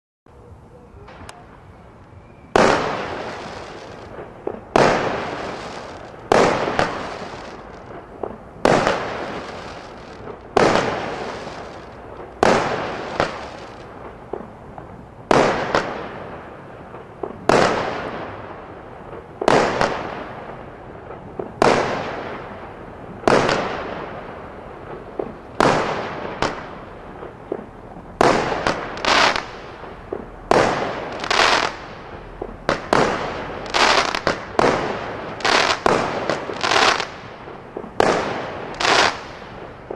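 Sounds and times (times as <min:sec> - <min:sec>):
firework bangs: 0:02.4 - 0:39.9.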